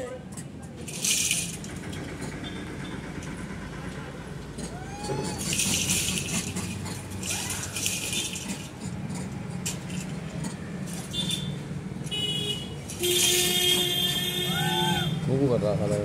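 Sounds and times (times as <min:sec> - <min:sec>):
metallic jangling and rattling: 0:00.2 - 0:03.6, 0:04.5 - 0:11.7.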